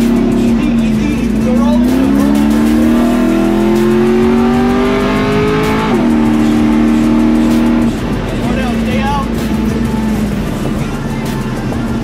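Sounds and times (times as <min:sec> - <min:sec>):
truck engine accelerating: 0:00.0 - 0:12.0.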